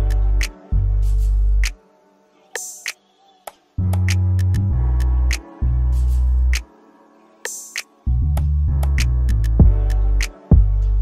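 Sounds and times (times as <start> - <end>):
deep held bass notes: 0.0 - 1.6, 3.8 - 6.6, 8.1 - 11.0
background music: 0.0 - 11.0.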